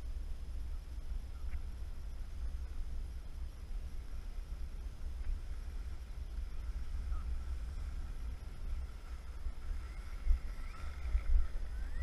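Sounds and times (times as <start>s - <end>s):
faint thin whine: 0.0s - 12.0s
wind buffeting a microphone: 0.0s - 12.0s
faint rising chirps: 5.6s - 12.0s.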